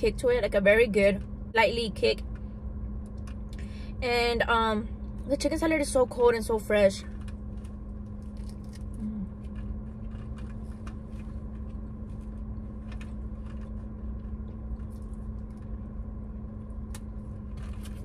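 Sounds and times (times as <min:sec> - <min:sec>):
car cabin hum: 0:00.0 - 0:18.0
chewing with soft crunches: 0:07.0 - 0:18.0.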